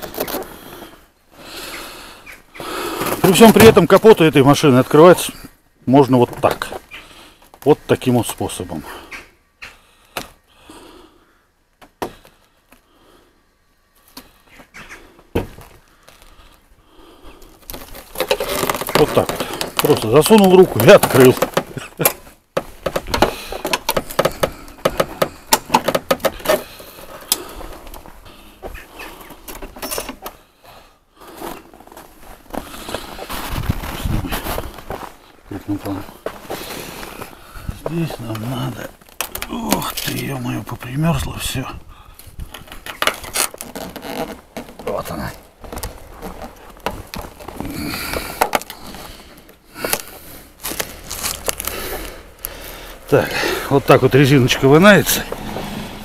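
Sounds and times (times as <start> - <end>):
rubber seal scraping and clicking: 0.0 - 0.5, 17.4 - 28.1, 42.4 - 52.6.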